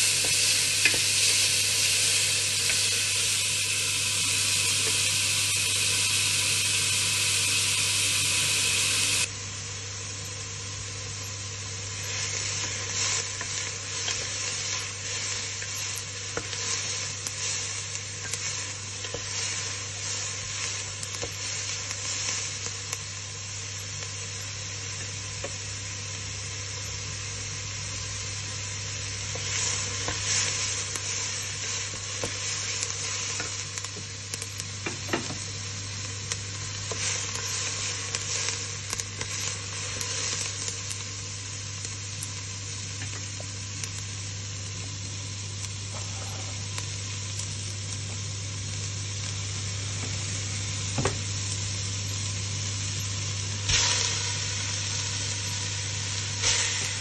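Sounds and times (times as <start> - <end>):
loud steady hiss: 0.0 - 57.0
onion sizzling in a pot: 0.0 - 57.0
wooden spoon scraping a pot: 45.9 - 46.6.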